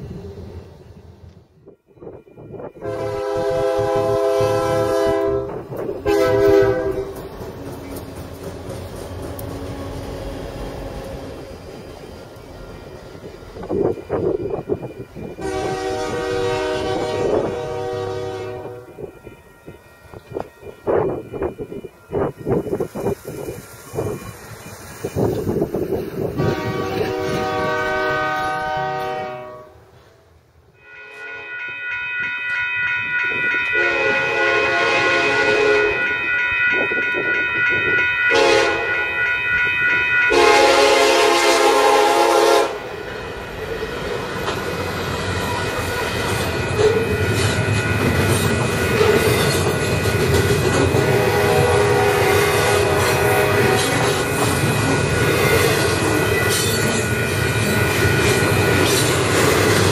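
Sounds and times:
train wheel rumble: 0.0 - 59.9
wheels clickety-clack on rails: 2.4 - 28.6, 35.2 - 40.4, 41.1 - 59.9
locomotive air horn blasts: 2.8 - 7.2, 15.4 - 19.1, 26.4 - 29.9, 30.8 - 31.6, 33.7 - 36.1, 38.3 - 39.0, 40.3 - 42.9, 50.9 - 54.3.

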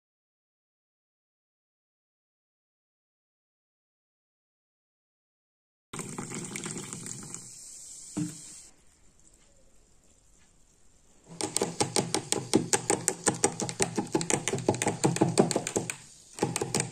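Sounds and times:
soda pouring into glass: 6.0 - 8.7.

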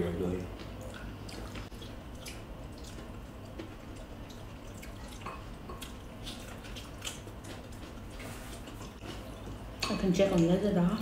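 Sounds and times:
wet chewing and lip smacks: 0.6 - 9.6.

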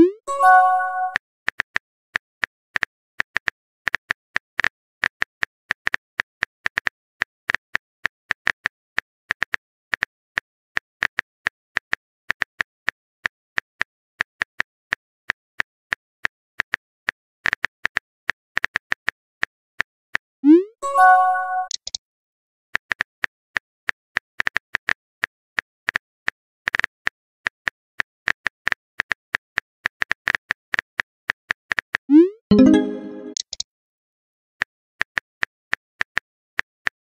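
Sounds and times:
keyboard typing clicks: 20.4 - 22.0, 32.1 - 33.6.

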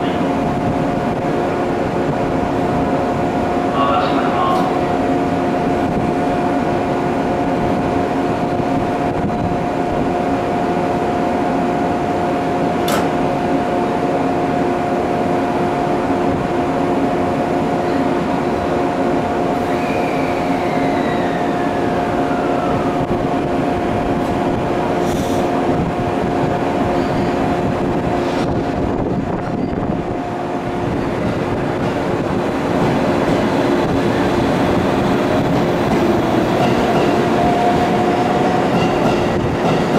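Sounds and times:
train equipment humming: 0.0 - 39.9
train pulling away: 16.9 - 39.9.

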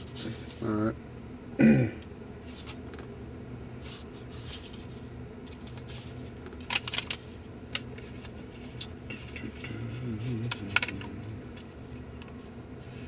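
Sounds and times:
steady low hum: 0.0 - 13.0
mobile phone rustles and clicks: 4.5 - 9.6.

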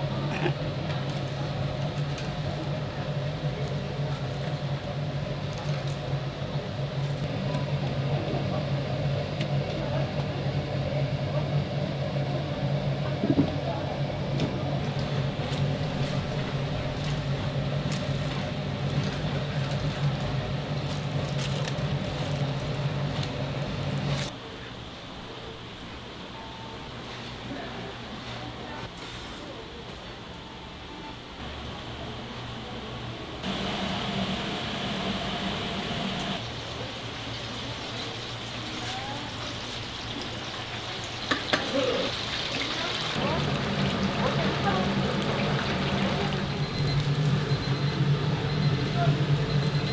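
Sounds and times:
low machine hum: 0.0 - 24.3, 30.2 - 49.9
oil sizzling in fryer: 33.5 - 49.9.

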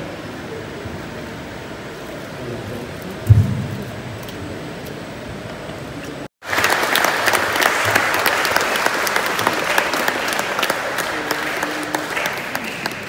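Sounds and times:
crowd applauding: 6.4 - 13.0.

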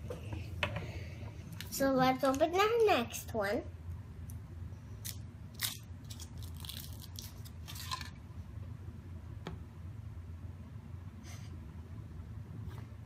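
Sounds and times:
foil wrapper crinkling: 5.0 - 8.1.

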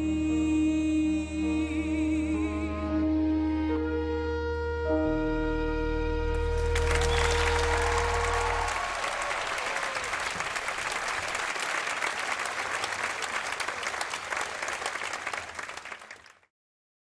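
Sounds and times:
music held chord: 0.1 - 9.0
audience applauding: 6.4 - 16.5.

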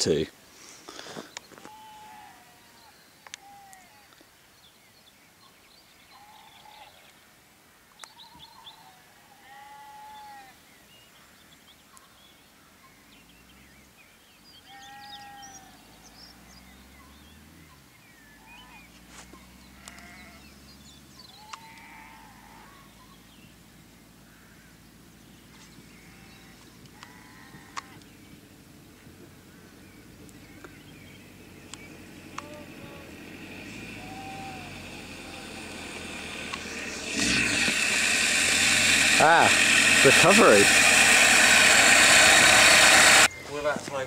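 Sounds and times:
sheep bleating: 1.6 - 4.0, 9.3 - 10.5, 14.7 - 15.8, 19.8 - 20.4, 21.4 - 22.9, 26.0 - 28.0, 32.3 - 36.0
distant engine drone: 14.9 - 43.9.

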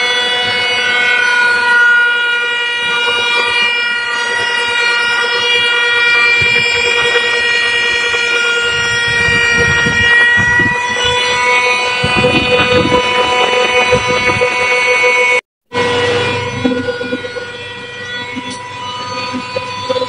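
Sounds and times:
machine motors whining: 0.0 - 20.0.

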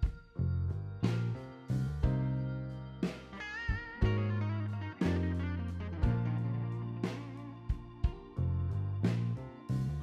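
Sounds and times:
bass line: 0.0 - 10.0
keyboard notes: 0.0 - 10.0
guitar notes: 2.1 - 9.4.

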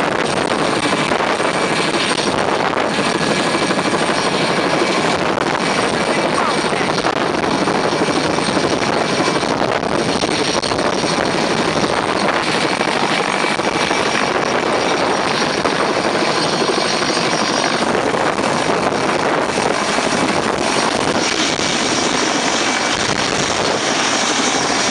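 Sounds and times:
helicopter hovering overhead: 0.0 - 24.9.

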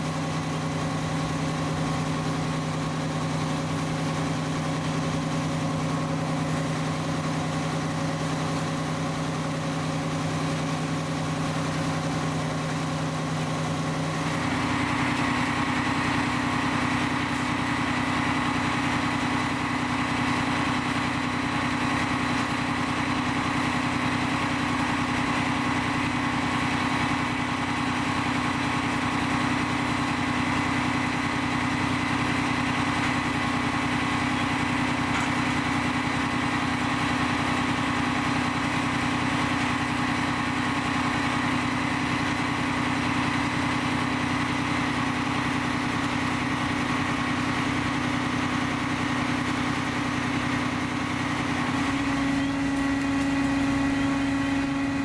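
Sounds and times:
engine motor humming: 0.0 - 55.0.

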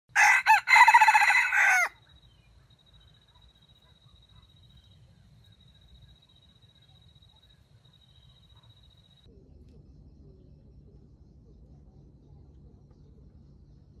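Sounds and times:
rooster crowing: 0.1 - 2.0.

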